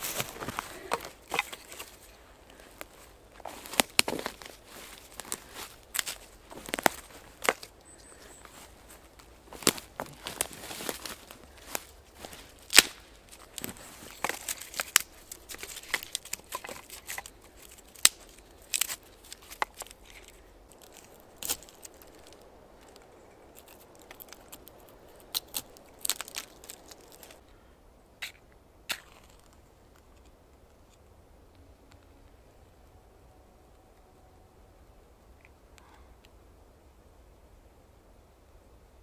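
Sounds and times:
crackling and snapping: 0:00.0 - 0:27.4
rustling: 0:00.0 - 0:27.4.

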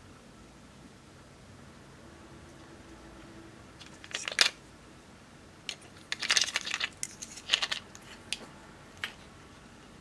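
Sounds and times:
plastic containers clicking and rattling: 0:05.7 - 0:08.0.

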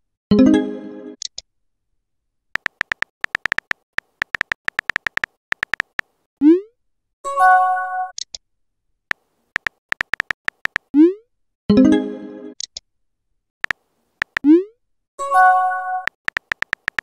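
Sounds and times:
keyboard taps: 0:02.6 - 0:06.1, 0:09.6 - 0:10.9, 0:13.6 - 0:14.4, 0:16.1 - 0:17.0.

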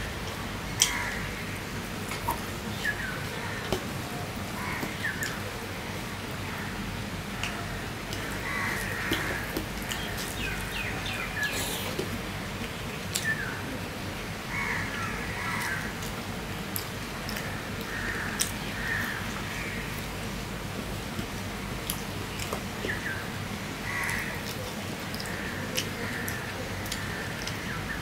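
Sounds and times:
bird cawing: 0:00.8 - 0:01.6, 0:04.6 - 0:05.4, 0:07.6 - 0:12.0, 0:14.5 - 0:16.0, 0:17.4 - 0:19.9, 0:23.8 - 0:24.4
chewing: 0:24.1 - 0:27.6.

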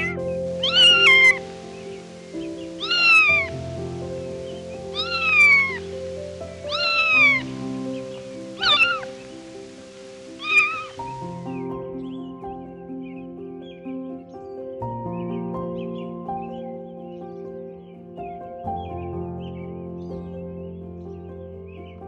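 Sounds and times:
cat meowing: 0:00.0 - 0:01.4, 0:02.8 - 0:03.6, 0:04.9 - 0:06.0, 0:06.6 - 0:07.5, 0:08.6 - 0:09.2, 0:10.4 - 0:11.0
soft background music: 0:00.0 - 0:22.0.

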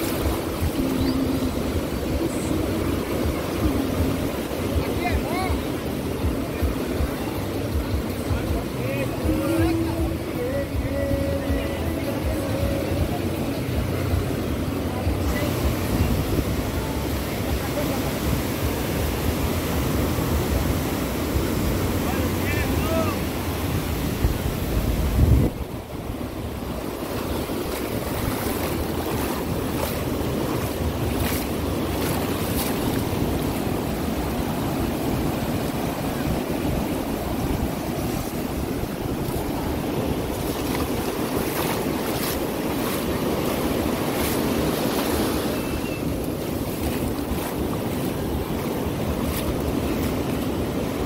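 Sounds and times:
ocean surf on beach: 0:00.0 - 0:51.0
wind buffeting microphone: 0:13.7 - 0:51.0.

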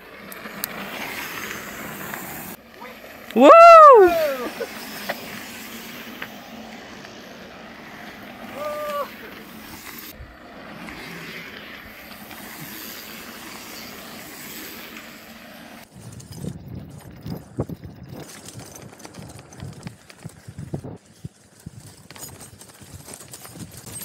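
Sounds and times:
wind rush on microphone: 0:15.8 - 0:23.9.

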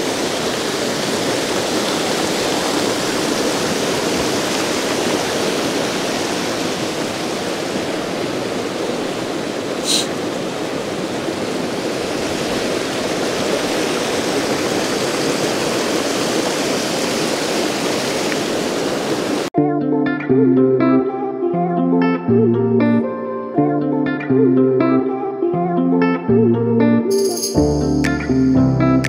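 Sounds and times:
river rushing: 0:00.0 - 0:19.5
brief high-pitched sound: 0:27.1 - 0:28.5.

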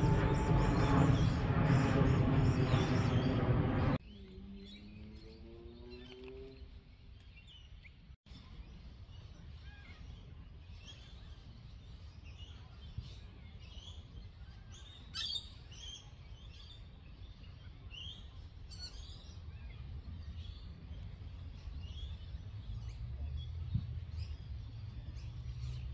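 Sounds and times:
steady low rumble: 0:00.0 - 0:04.0, 0:16.9 - 0:25.9
small birds chirping: 0:04.0 - 0:25.9.

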